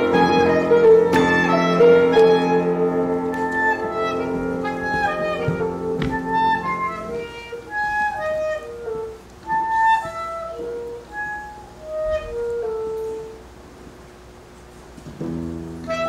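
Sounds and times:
orchestra chord: 0:00.0 - 0:08.4
solo woodwind melody: 0:00.0 - 0:13.5, 0:15.7 - 0:16.0.

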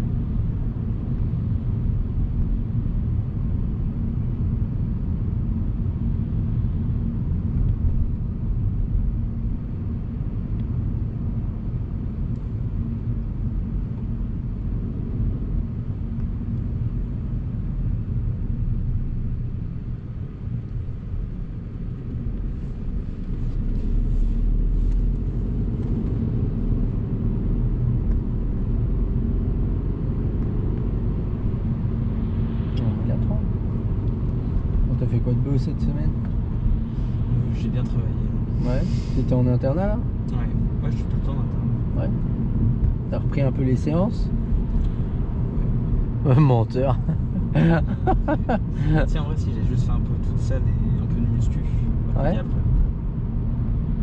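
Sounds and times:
car engine and road rumble: 0:00.0 - 0:54.0.

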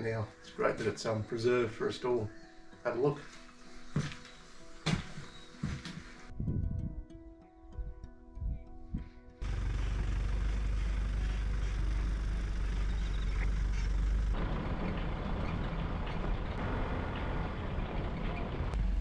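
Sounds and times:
tyre and road hiss: 0:09.4 - 0:14.6
truck engines rumbling: 0:09.4 - 0:19.0.

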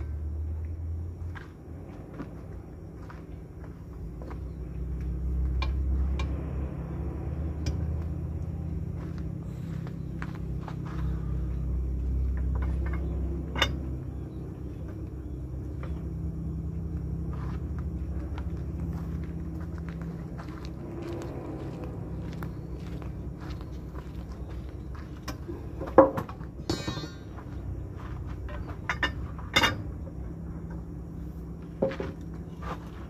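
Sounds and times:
diesel engine idling: 0:00.0 - 0:33.0
sharp metal clank: 0:26.6 - 0:27.4.

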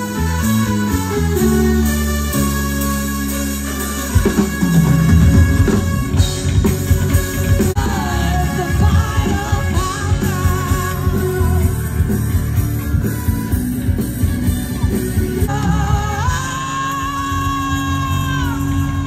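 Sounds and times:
loud rock music: 0:00.0 - 0:19.0
person singing: 0:07.0 - 0:14.1, 0:14.8 - 0:19.0.

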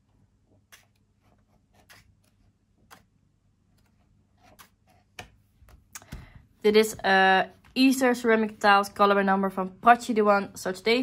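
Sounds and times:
book pages turning: 0:00.5 - 0:06.3.

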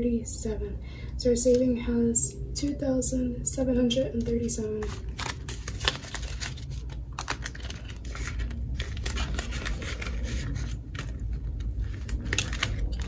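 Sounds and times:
paper banknotes rustling: 0:04.4 - 0:13.0.

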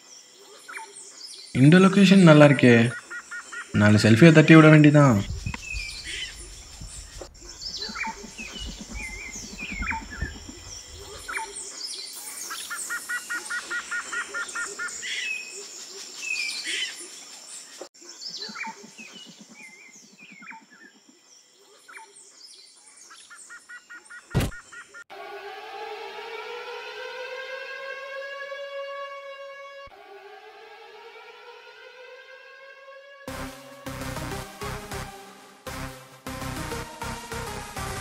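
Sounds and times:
birds chirping: 0:00.0 - 0:25.1
rapid trilling bird call: 0:00.5 - 0:04.0, 0:05.6 - 0:17.0
loud thump: 0:24.4 - 0:24.6.

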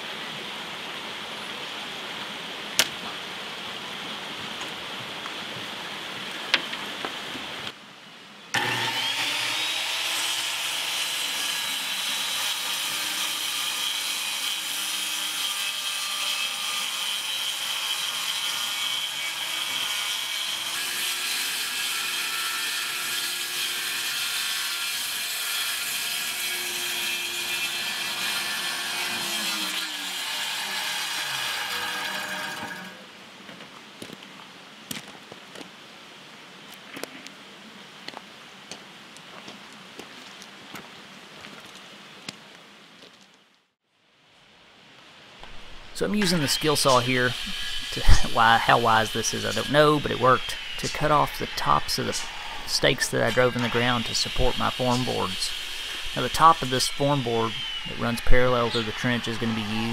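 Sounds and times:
circular saw cutting plywood: 0:08.6 - 0:33.0, 0:45.4 - 0:59.9.

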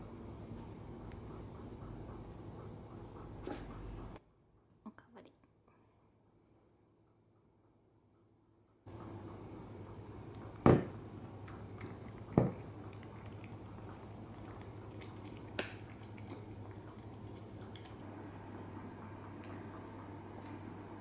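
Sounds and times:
puppy crunching dry kibble: 0:11.3 - 0:18.1.

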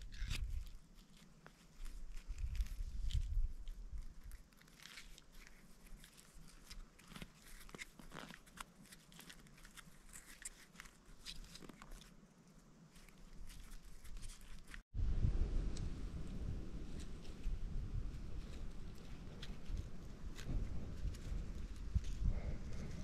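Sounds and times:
grass fibres rustling and crackling: 0:00.0 - 0:23.0
low rumble: 0:15.0 - 0:23.0.

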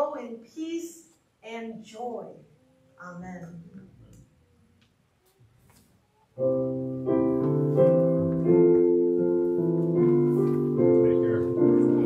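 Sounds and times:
piano chords: 0:06.4 - 0:12.0.

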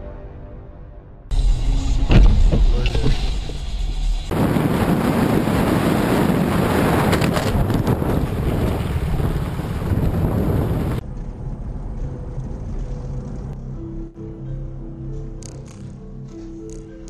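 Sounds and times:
car cabin low hum: 0:01.3 - 0:05.0
wind and road rush: 0:01.3 - 0:13.7.

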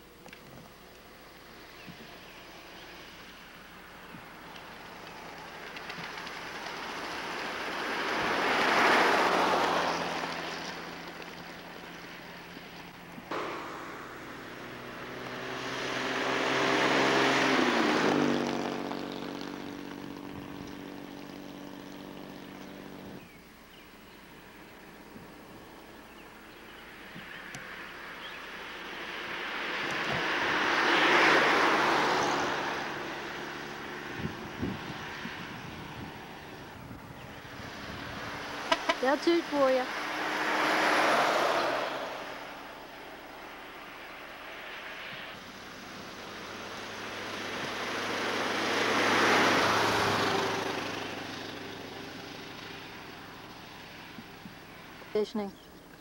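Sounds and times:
car driving past: 0:01.3 - 0:23.4, 0:24.3 - 0:55.2.

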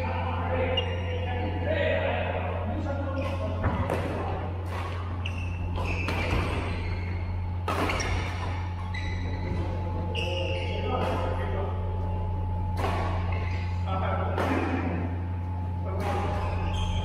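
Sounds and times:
low hall hum: 0:00.0 - 0:17.0
shoe squeaks on court: 0:00.6 - 0:01.4, 0:05.1 - 0:11.4, 0:16.2 - 0:17.0
racket striking shuttlecock: 0:07.6 - 0:08.5, 0:12.7 - 0:13.6.

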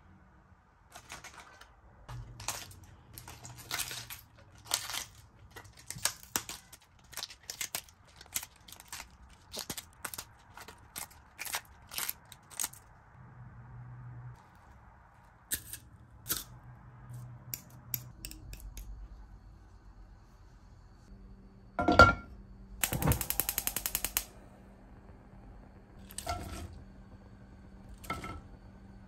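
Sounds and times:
cabbage leaves tearing: 0:02.4 - 0:12.8.

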